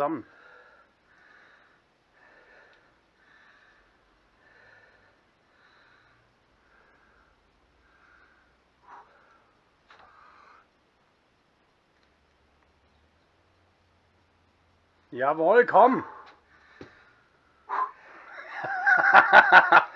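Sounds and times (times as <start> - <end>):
man breathing forcefully: 0.2 - 10.8, 16.0 - 18.4.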